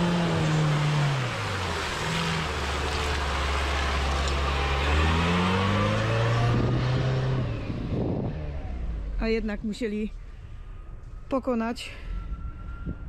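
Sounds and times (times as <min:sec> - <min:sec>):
off-road engine revving: 0:00.0 - 0:09.7.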